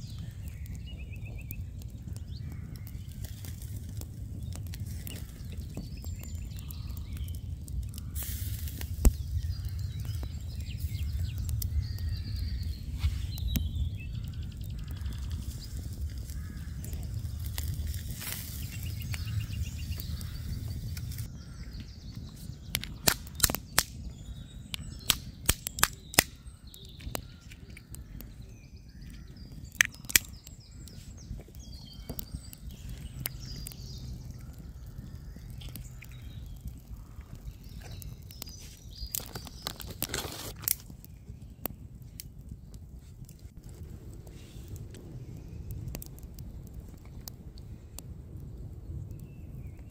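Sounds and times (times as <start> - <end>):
faint bird calls: 0.0 - 40.4
campfire rumbling: 0.0 - 49.9
fire crackling and popping: 0.0 - 49.9.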